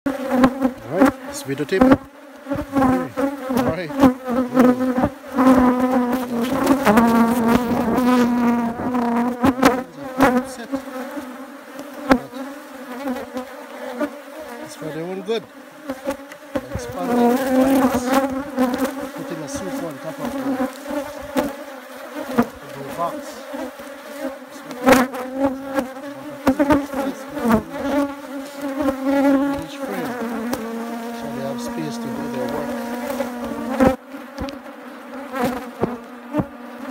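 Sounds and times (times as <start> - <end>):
honeybees buzzing: 0.1 - 36.9
hive tool knocking on wood: 15.9 - 21.6, 22.2 - 34.6, 35.3 - 36.5.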